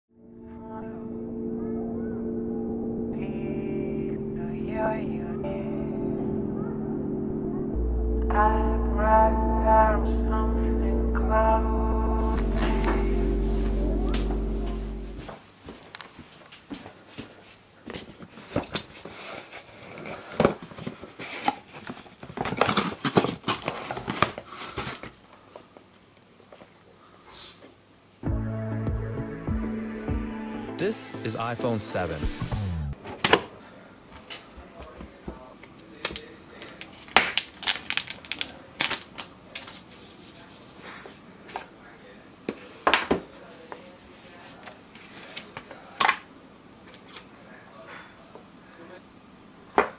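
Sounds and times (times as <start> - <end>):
plastic shrink-wrap crinkling and tearing: 36.9 - 39.8.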